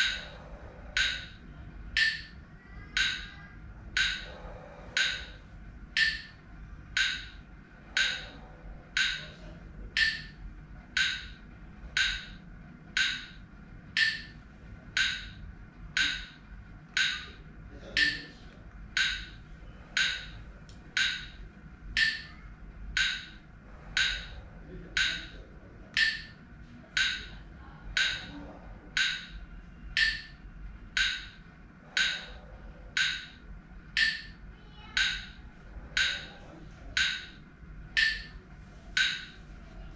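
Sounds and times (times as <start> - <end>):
metronome wood-block clicks: 0.9 - 4.4, 5.0 - 9.4, 10.0 - 14.4, 15.0 - 15.4, 16.0 - 17.4, 18.0 - 18.3, 18.9 - 19.4, 20.0 - 23.4, 24.0 - 24.4, 25.0 - 25.3, 25.9 - 26.4, 27.0 - 27.4, 28.0 - 28.4, 29.0 - 29.4, 30.0 - 31.4, 32.0 - 34.4, 35.0 - 35.4, 36.0 - 36.4, 37.0 - 37.4, 38.0 - 38.4, 39.0 - 39.4.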